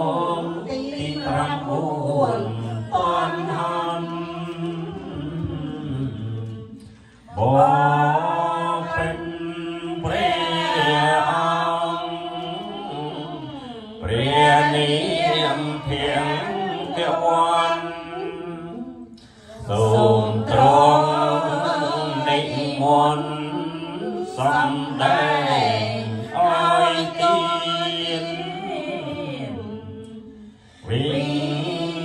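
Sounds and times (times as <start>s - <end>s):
woman chanting through microphone: 0.0s - 4.4s, 13.9s - 18.9s.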